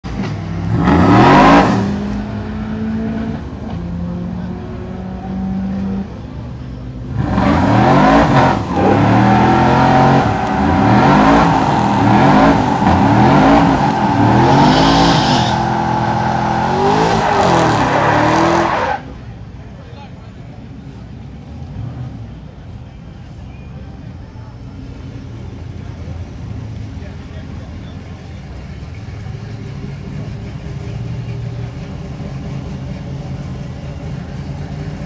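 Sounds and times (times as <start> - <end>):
truck engine revving: 0.1 - 6.2, 7.0 - 19.3.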